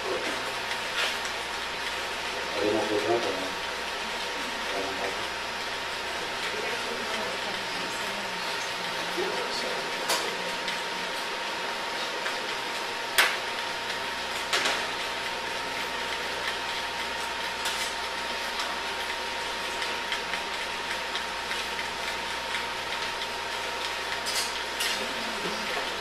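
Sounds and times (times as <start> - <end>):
utensils clinking on steel bowl: 24.2 - 25.1.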